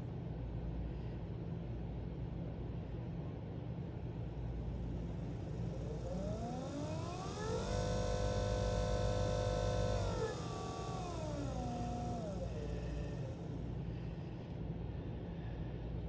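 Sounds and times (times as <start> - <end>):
steady low hum: 0.0 - 16.0
electric motor whining: 5.2 - 13.8.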